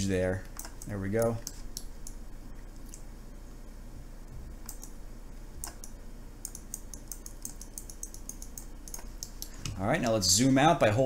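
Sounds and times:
faint mains hum: 0.0 - 11.0
computer mouse clicking: 0.5 - 2.2, 4.6 - 5.0, 5.6 - 9.8.

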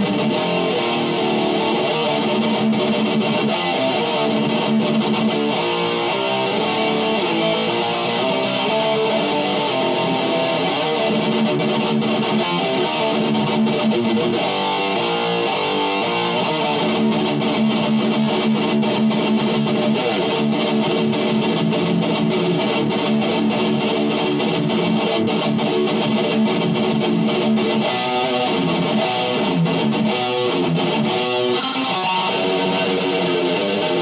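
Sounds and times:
distorted electric guitar riffs: 0.0 - 34.0.

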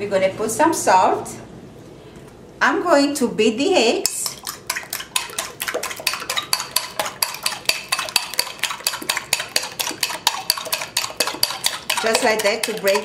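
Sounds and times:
fork clicking against bowl: 4.0 - 13.0.

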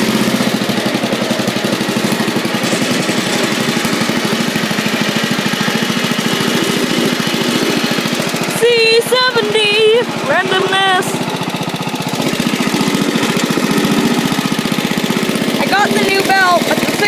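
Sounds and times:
small engine running steadily: 0.0 - 17.0.

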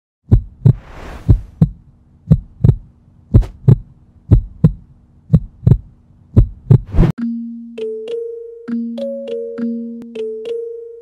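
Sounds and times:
heartbeat thumps: 0.3 - 7.1
faint steady hum: 1.3 - 11.0.

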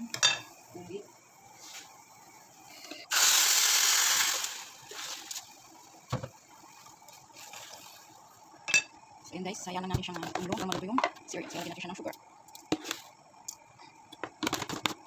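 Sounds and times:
water sizzling in hot oil: 3.1 - 8.8.

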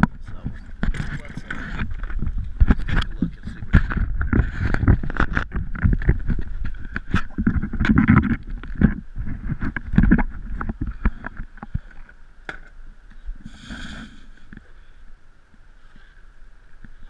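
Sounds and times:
knocks and rustling on dock: 0.0 - 13.2
faint steady hum: 0.0 - 17.0.

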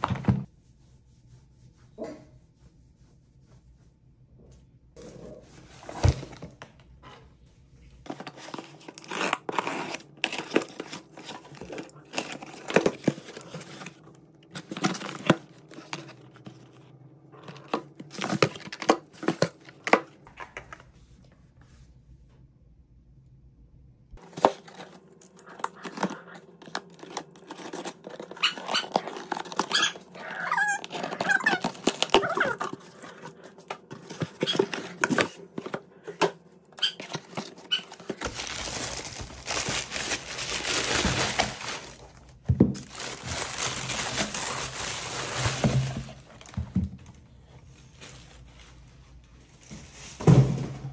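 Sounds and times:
packaging rustling and tearing: 8.0 - 16.7, 17.4 - 20.0, 24.2 - 35.8, 36.8 - 50.2
dog barking and whining: 28.4 - 32.6
boxes set down: 50.1 - 50.9.

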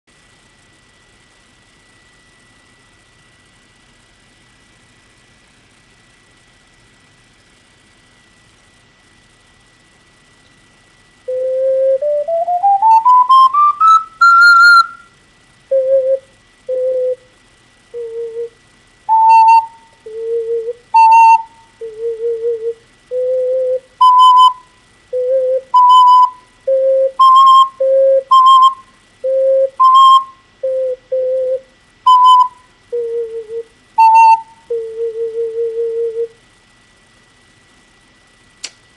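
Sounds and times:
ocarina melody: 11.3 - 15.1, 15.7 - 17.2, 18.0 - 36.3.

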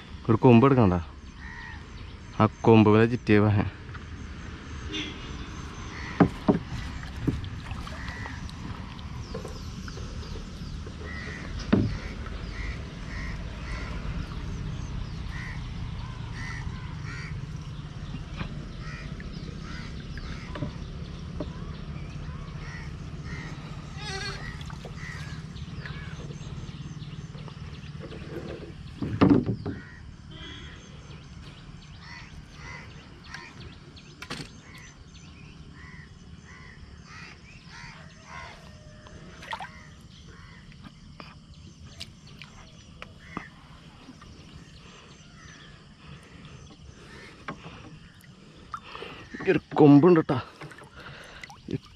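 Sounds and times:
crows cawing: 1.4 - 1.9, 5.8 - 6.9, 7.8 - 8.7, 11.0 - 14.2, 15.3 - 17.4, 18.8 - 20.6, 22.6 - 26.2, 29.8 - 30.9, 32.0 - 33.6, 35.8 - 40.6.

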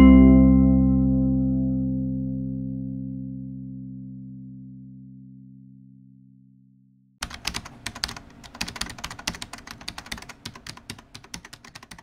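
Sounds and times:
keyboard typing clicks: 7.2 - 12.0.

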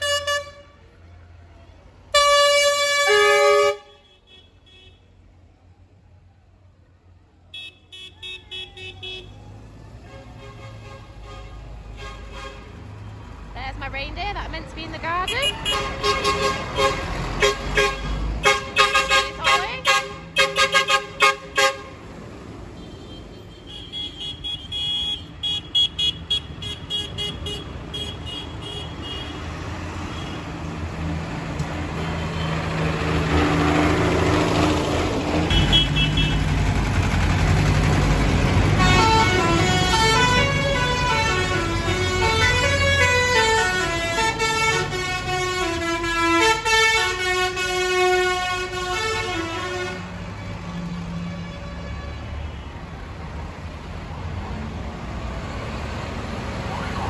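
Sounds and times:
tractor diesel engines passing: 0.0 - 57.0
horn toots: 2.1 - 5.0, 15.0 - 22.0, 35.5 - 36.5, 38.7 - 50.1.

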